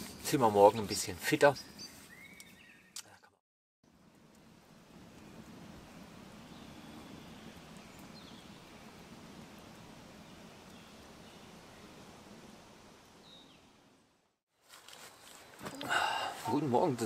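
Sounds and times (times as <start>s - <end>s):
campfire crackles: 0.0s - 2.6s, 3.9s - 17.0s
low steady rush: 3.9s - 13.2s.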